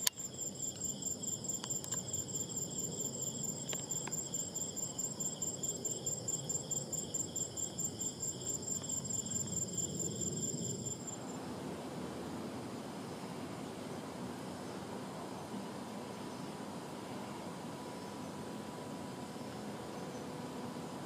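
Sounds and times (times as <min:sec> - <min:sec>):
insects trilling: 0:00.0 - 0:11.4
low rushing background noise: 0:00.0 - 0:21.0.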